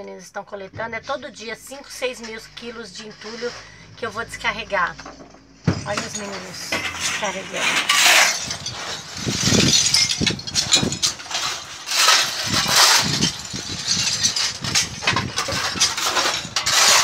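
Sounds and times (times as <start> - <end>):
rubble clattering: 0.8 - 17.0
shovels scraping pavement: 2.2 - 4.3, 5.8 - 17.0.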